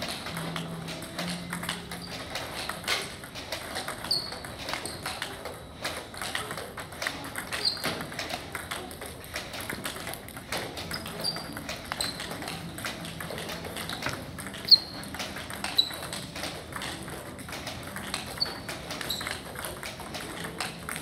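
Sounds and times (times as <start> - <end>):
table tennis balls clicking: 0.0 - 21.0
short high squeaks: 4.0 - 5.0.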